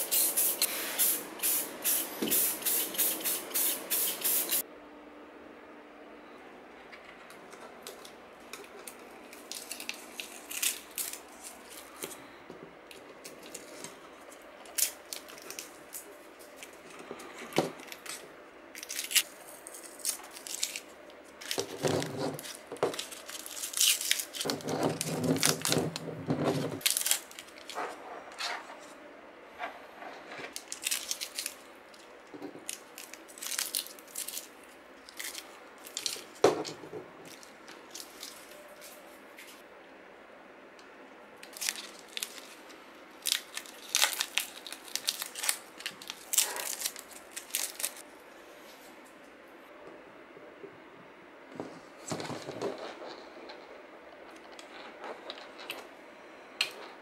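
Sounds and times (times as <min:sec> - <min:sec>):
aluminium foil crinkling: 0:08.0 - 0:12.3, 0:13.2 - 0:26.1, 0:26.8 - 0:27.8, 0:30.5 - 0:36.4, 0:41.4 - 0:48.1
masking tape peeling: 0:08.6 - 0:12.0, 0:18.8 - 0:27.9, 0:43.2 - 0:48.0.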